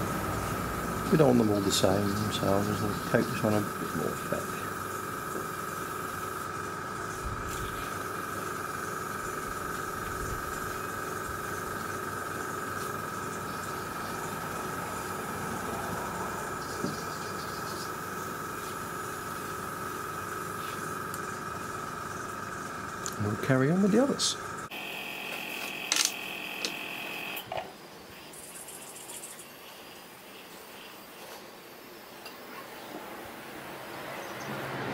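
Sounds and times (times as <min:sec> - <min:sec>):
airbrush hissing: 0:00.0 - 0:16.8
air compressor whining: 0:00.0 - 0:27.6.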